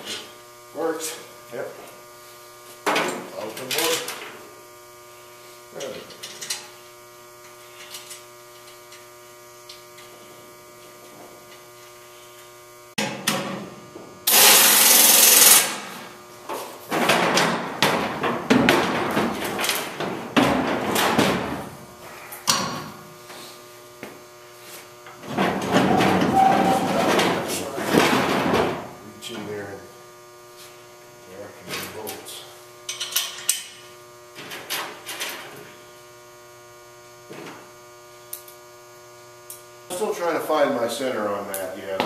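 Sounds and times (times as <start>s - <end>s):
electrical hum: 0.0s - 42.0s
air tool rush: 14.3s - 15.8s.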